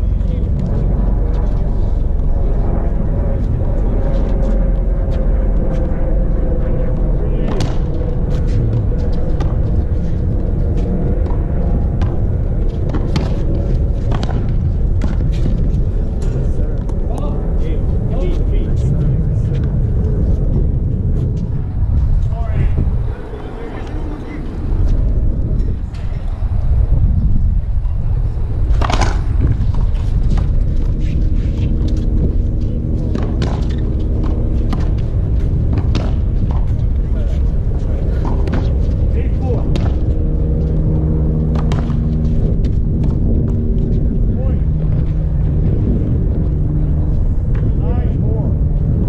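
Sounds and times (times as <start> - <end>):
steady low rumble: 0.0 - 49.0
racquetball hard strike: 12.9 - 15.6, 28.7 - 30.6, 33.1 - 36.9.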